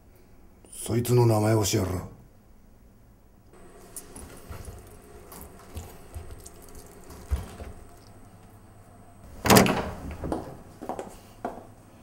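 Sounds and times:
fruit squelching on citrus reamer: 3.6s - 8.2s.

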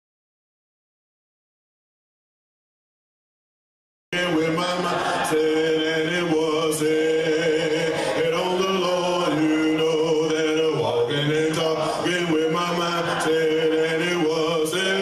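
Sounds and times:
men singing chant-like: 4.2s - 15.0s.

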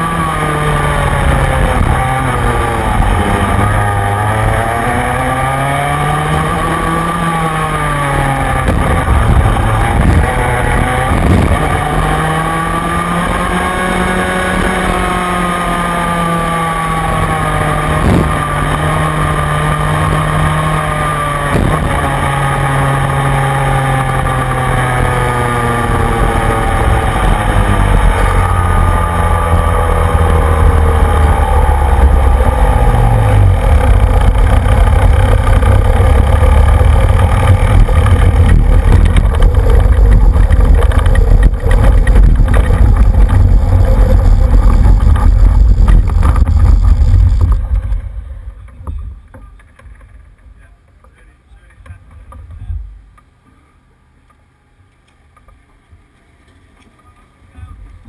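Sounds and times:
kart engine revving: 0.0s - 50.7s.

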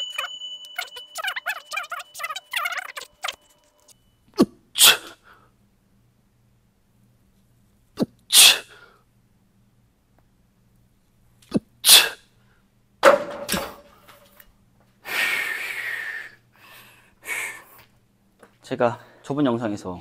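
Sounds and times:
sharp hissing exhalations: 15.0s - 17.8s.

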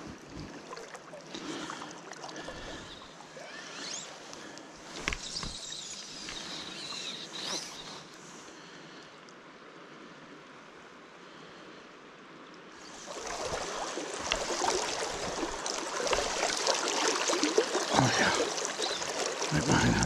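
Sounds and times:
fly line swishing: 2.7s - 8.3s, 12.8s - 19.6s
stream rushing: 12.8s - 20.0s.

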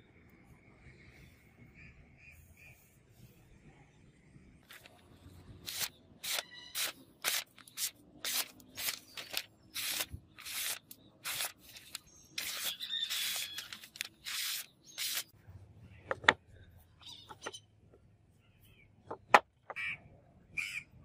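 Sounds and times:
blade slicing paper: 5.6s - 15.3s.

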